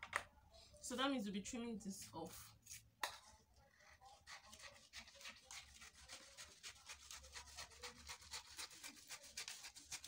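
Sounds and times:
scissors snipping paper: 4.1 - 10.0.

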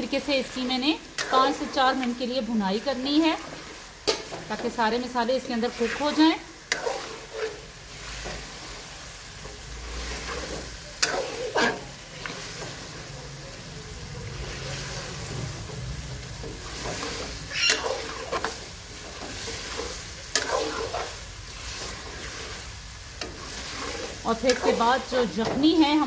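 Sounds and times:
meat sizzling in a pot: 0.0 - 26.0
steel spoon scraping a pot: 5.8 - 8.4, 9.4 - 12.9, 16.5 - 25.4.

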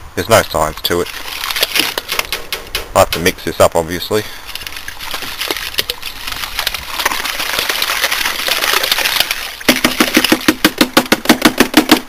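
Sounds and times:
powder pouring into water: 4.5 - 10.8
fast run of sharp knocks: 9.7 - 12.0.

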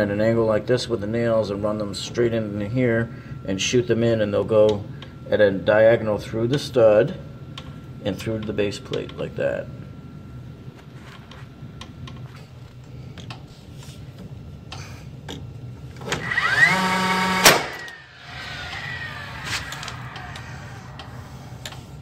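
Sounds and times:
nailer motor whine: 16.0 - 22.0
nailer firing crack: 17.4 - 17.9.

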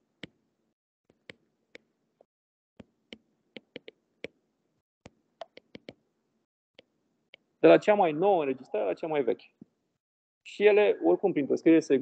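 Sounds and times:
stylus tapping on tablet screen: 0.2 - 0.4, 1.1 - 4.4, 5.1 - 6.1.

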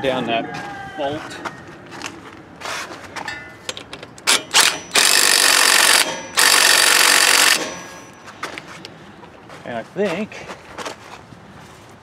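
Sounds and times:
impact driver hammering: 4.2 - 8.2.

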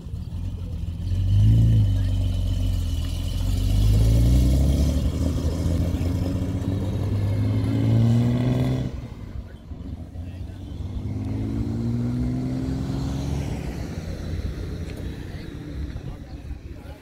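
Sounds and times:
car engine revving: 0.0 - 17.0.

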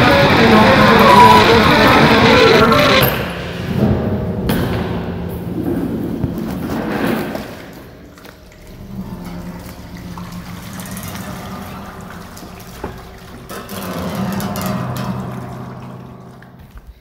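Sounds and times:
low sustained tones: 8.0 - 16.8
swelling tone: 8.1 - 16.9.

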